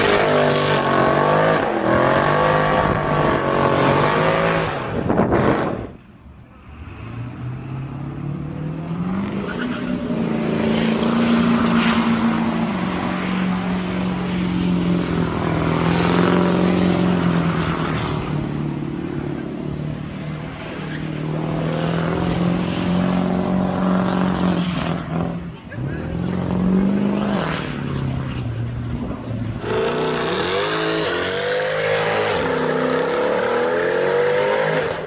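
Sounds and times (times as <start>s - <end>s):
truck engine revving: 0.0s - 6.0s, 29.6s - 35.0s.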